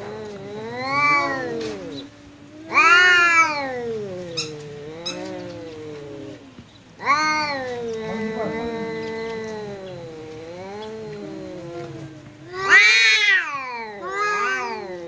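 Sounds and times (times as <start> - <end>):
cats yowling: 0.0 - 15.0.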